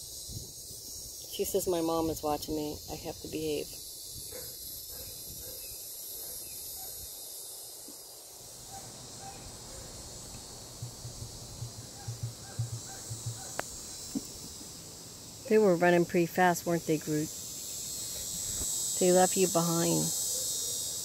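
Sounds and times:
insects chirring: 0.0 - 21.0
soft low thumps: 10.4 - 14.6
faint bird calls: 10.9 - 14.4.

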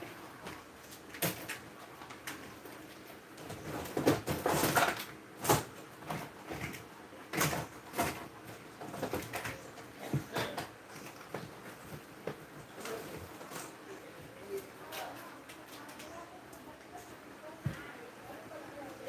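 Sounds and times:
objects being handled clattering: 0.4 - 14.0.

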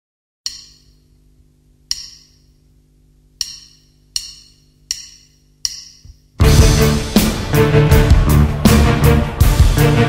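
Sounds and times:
sharp metallic clicks ringing: 0.5 - 1.2, 1.9 - 2.6, 3.4 - 6.3.

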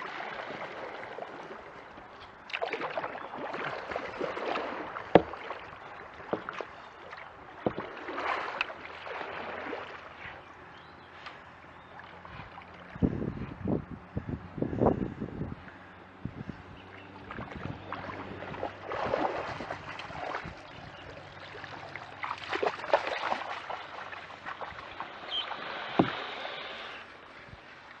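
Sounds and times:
paddle strokes splashing: 0.0 - 13.6, 16.8 - 28.0
small knocks: 5.1 - 5.4.

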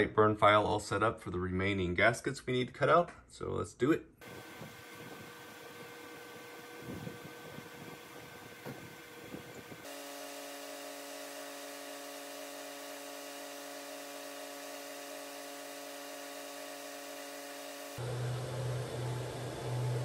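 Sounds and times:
laser cutter humming: 4.2 - 20.0
low hum: 11.1 - 20.0.

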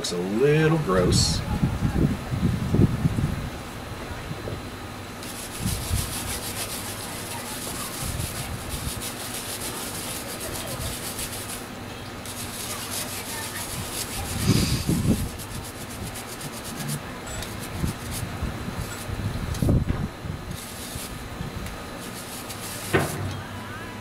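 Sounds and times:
stiff brush scrubbing metal part: 5.2 - 19.8, 20.5 - 23.4
low handling bump: 19.5 - 20.5.

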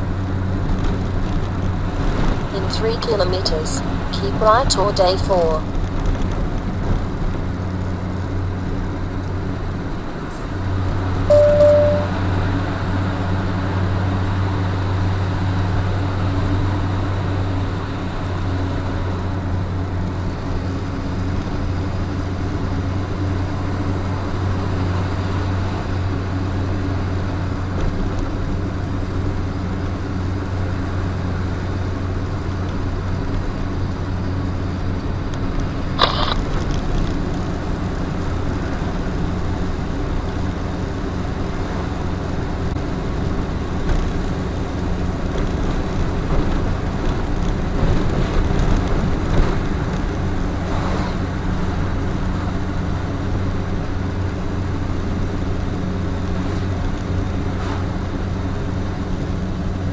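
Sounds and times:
road noise: 0.0 - 59.9
truck engine drone: 0.0 - 59.9
short beep: 11.3 - 12.3.

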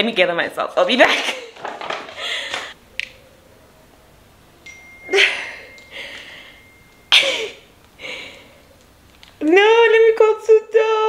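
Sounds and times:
woman laughing cries: 5.1 - 5.7, 7.1 - 7.7.

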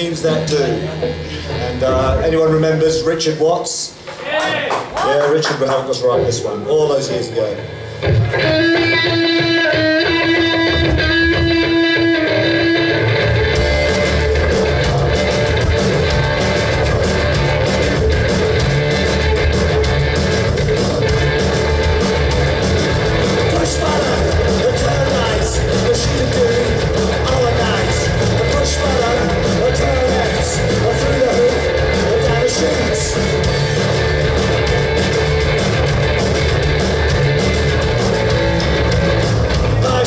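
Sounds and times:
rock band playing live: 0.0 - 4.2, 7.1 - 40.0
guitar held notes: 7.8 - 25.3.

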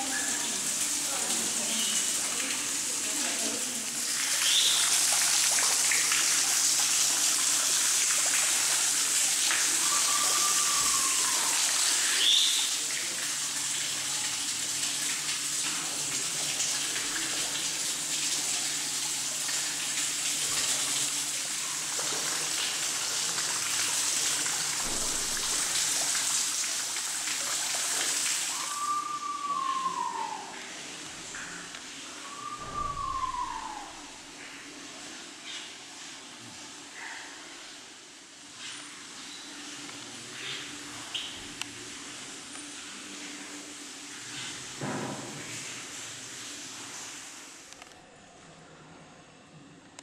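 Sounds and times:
water splashing down waterfall: 0.0 - 34.4
bird whistling: 4.4 - 4.9, 9.8 - 11.5, 12.2 - 12.7, 28.5 - 30.5, 32.3 - 34.1.

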